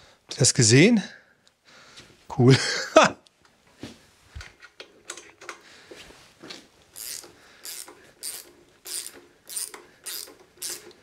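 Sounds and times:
ratchet wrench clicking: 7.0s - 11.0s.

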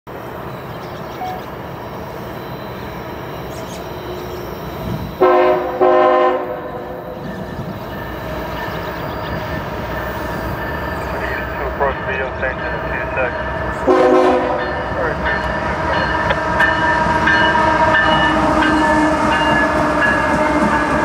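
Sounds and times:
train rumbling: 0.1s - 21.0s
locomotive horn blasts: 3.4s - 8.0s, 13.8s - 14.9s, 16.7s - 21.0s.

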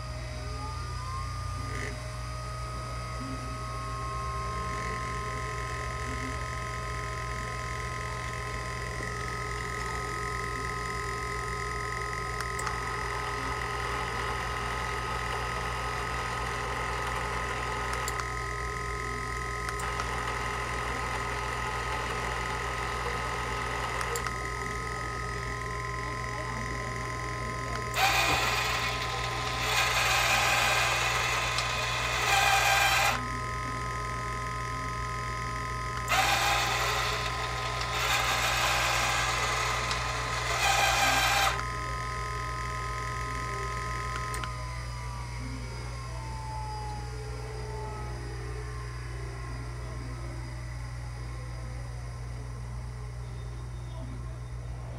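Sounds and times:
ball machine motor whine: 0.0s - 54.9s
rough mechanical noise: 19.5s - 33.3s, 35.6s - 41.8s.

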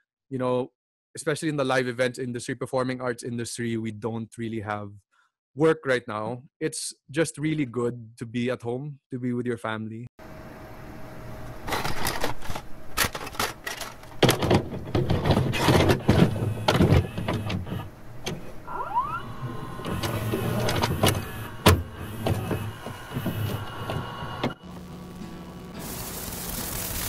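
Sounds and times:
mechanical whirring and clattering: 11.4s - 27.0s
rising whistle-like glide: 18.6s - 20.6s.

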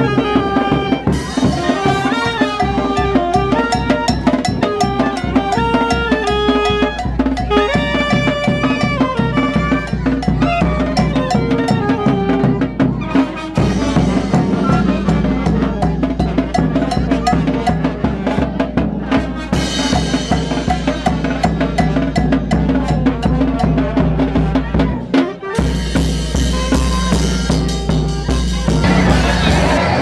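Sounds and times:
brass playing a tune: 0.0s - 20.4s, 23.4s - 30.0s
bass drum with cymbal: 0.0s - 30.0s.

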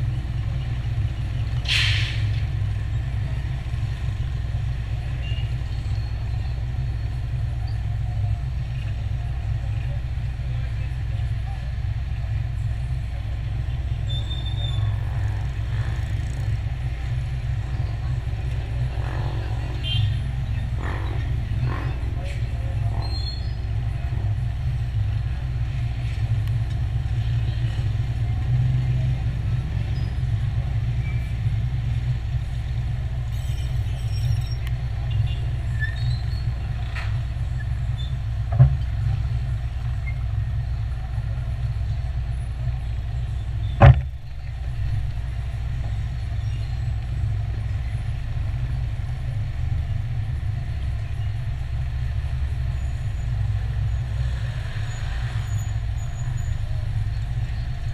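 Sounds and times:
motor traffic: 0.0s - 57.9s
car engine idling: 34.0s - 54.0s
sharp knocks: 43.8s - 44.2s.

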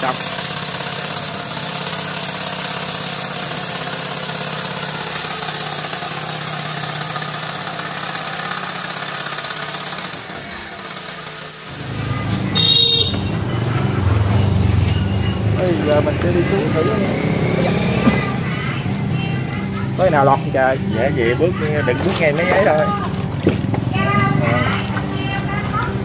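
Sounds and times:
small engine idling: 0.0s - 26.0s
deeper engine rumble: 11.7s - 26.0s.

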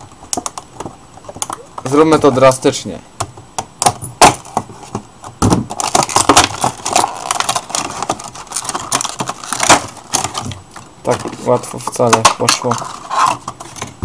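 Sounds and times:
packaging rustling and crackling: 5.6s - 14.0s
packaging snapping and clicking: 5.7s - 11.4s.

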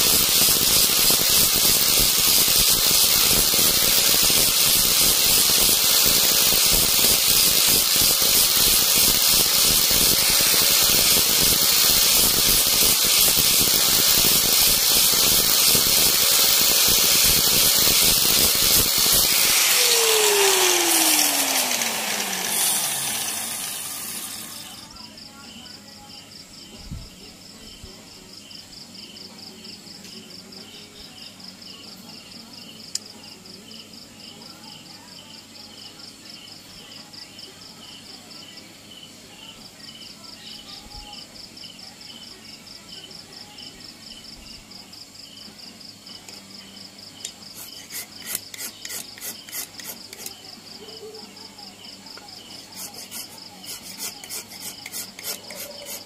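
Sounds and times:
insects chirping: 0.0s - 56.0s
rasp filing wood: 47.6s - 50.3s, 52.7s - 56.0s.

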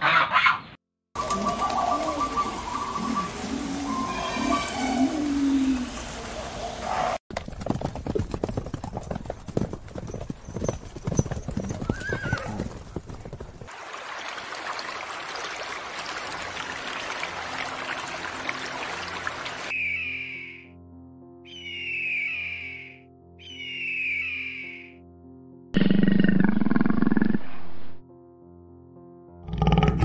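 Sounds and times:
bird of prey screaming: 3.8s - 5.6s, 21.5s - 24.9s
horses galloping: 7.3s - 13.7s
horse whinny: 11.5s - 12.9s.

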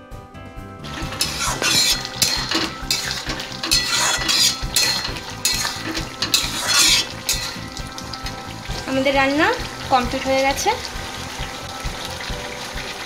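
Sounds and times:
spatula scraping metal pan: 0.9s - 7.8s.

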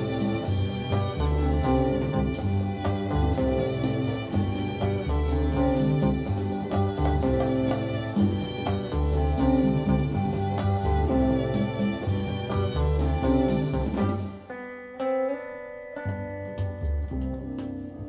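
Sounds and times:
background music with bass and beat: 0.0s - 14.3s.

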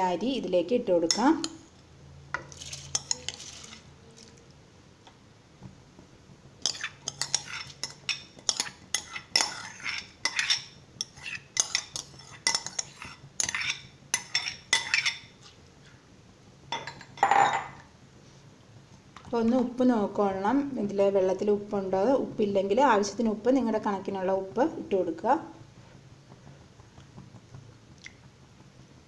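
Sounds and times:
spoon stirring rice and water: 1.0s - 1.6s, 2.4s - 4.4s, 6.6s - 16.0s
spoon clinking and scraping cookware: 2.4s - 3.8s, 6.6s - 15.4s.

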